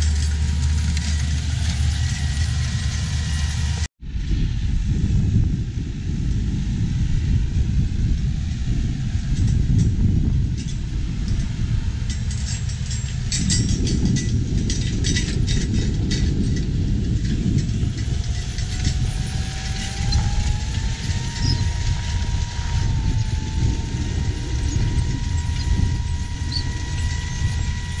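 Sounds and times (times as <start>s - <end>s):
planter clatter: 0.0s - 3.9s, 11.4s - 28.0s
tractor diesel rumble: 0.0s - 3.9s, 5.8s - 28.0s
thin rising whine: 17.4s - 28.0s.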